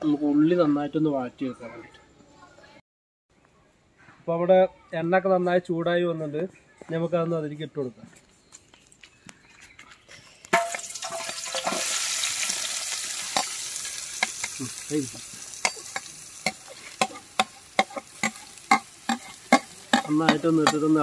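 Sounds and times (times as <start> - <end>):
onions sizzling in hot oil: 10.5 - 21.0.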